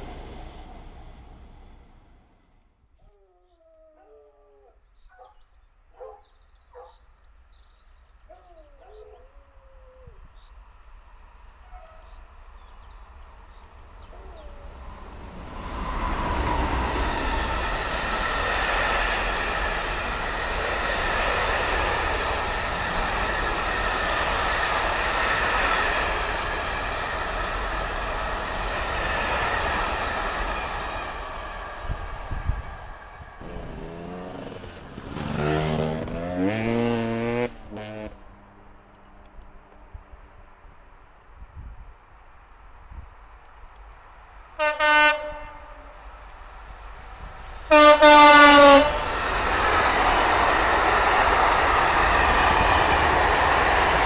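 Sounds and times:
freight train wheels on rails: 0.0s - 2.7s, 10.9s - 41.7s, 42.8s - 54.0s
birds singing: 2.8s - 15.0s.

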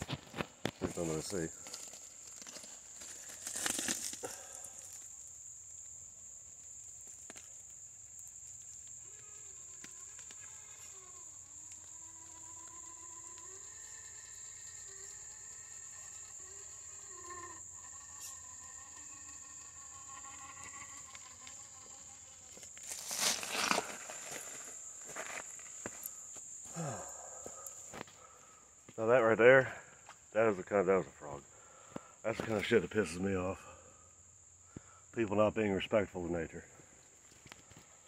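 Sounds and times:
rustling: 0.0s - 5.2s, 20.6s - 26.4s
insects droning: 0.0s - 38.0s.

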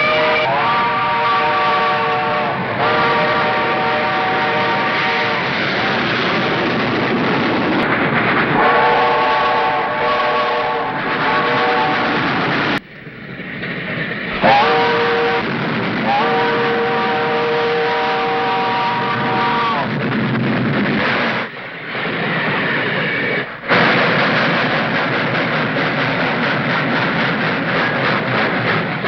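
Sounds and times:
locomotive chime whistle: 0.0s - 5.4s, 14.4s - 15.5s
steam locomotive running hard: 0.0s - 29.0s.

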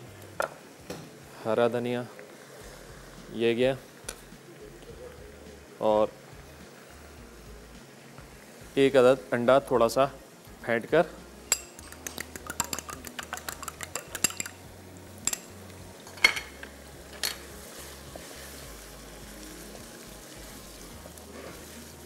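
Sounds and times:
egg sizzling in a pan: 11.4s - 22.0s
fork beating egg in bowl: 11.6s - 14.6s.

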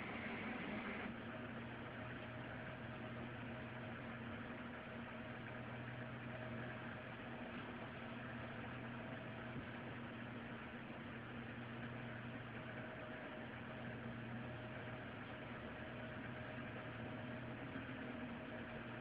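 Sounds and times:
low hum: 0.0s - 1.1s.

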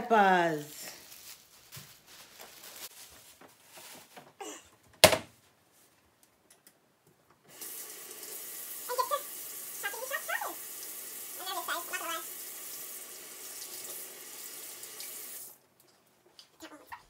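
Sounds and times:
water running into a metal sink: 7.5s - 15.6s.

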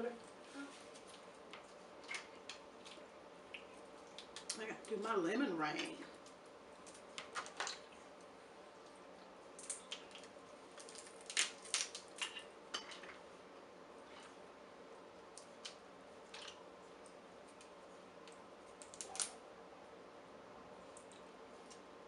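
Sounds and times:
crab shells cracking: 2.0s - 4.6s, 9.5s - 12.5s, 17.5s - 19.4s.

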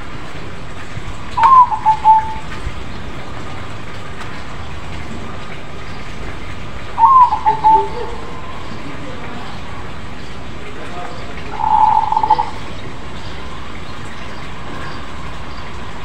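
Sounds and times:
dove cooing: 1.4s - 2.6s, 7.0s - 9.3s, 11.3s - 12.8s.

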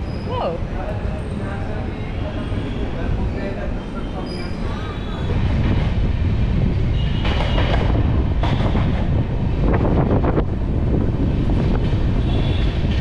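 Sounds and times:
train wheels rumbling on rails: 0.0s - 13.0s
wind on microphone: 4.5s - 13.0s
rattles and clacks: 7.2s - 9.9s.

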